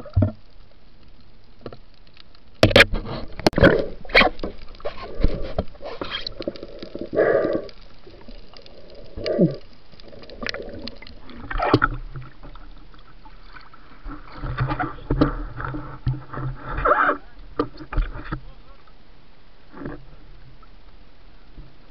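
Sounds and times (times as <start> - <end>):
water sloshing and rumbling: 0.0 - 21.9
gurgling bursts: 3.6 - 12.2
muffled underwater noise: 13.5 - 21.9.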